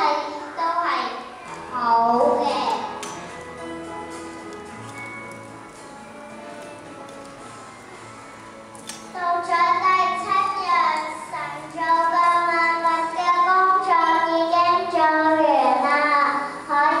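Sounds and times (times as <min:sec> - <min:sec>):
child singing into a microphone: 0:09.2 - 0:17.0.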